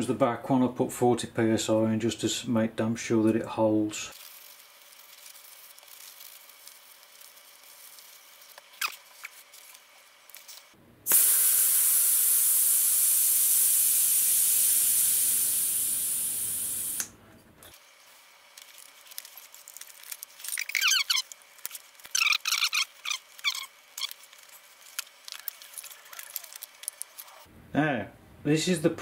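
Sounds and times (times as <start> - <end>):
air hissing from tyre valve: 11.1 - 17.1
squeaky rubbing: 20.4 - 21.3, 22.1 - 24.2.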